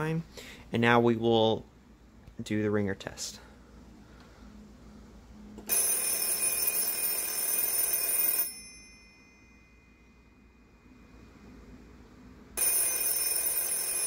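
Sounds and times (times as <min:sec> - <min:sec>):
telephone bells ringing: 0:05.7 - 0:10.2, 0:12.6 - 0:14.0.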